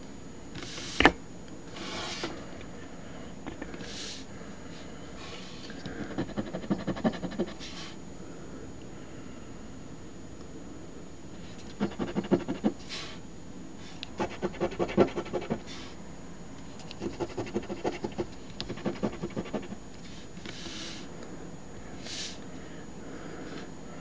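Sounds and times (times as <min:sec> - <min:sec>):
coin scratching lottery ticket: 0:11.6 - 0:12.7, 0:17.0 - 0:19.8.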